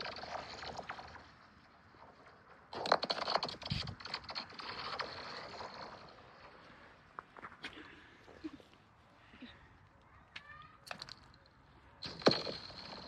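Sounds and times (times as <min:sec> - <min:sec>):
stone skittering on ice: 0:00.0 - 0:06.6.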